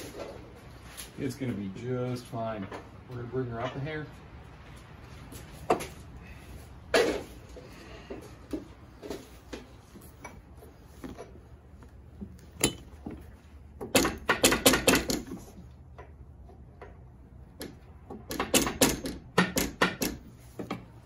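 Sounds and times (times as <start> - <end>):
metal tools clattering: 12.6 - 13.0.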